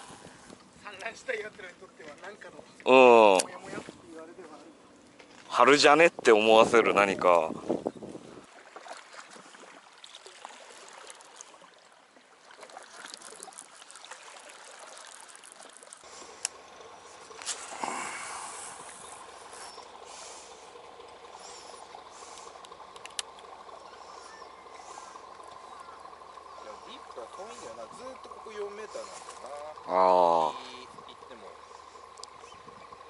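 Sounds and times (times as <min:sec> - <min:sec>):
water lapping against stone: 0:08.4 - 0:29.9
faint steady hum: 0:09.6 - 0:33.0
fishing tackle clicks: 0:22.6 - 0:23.5.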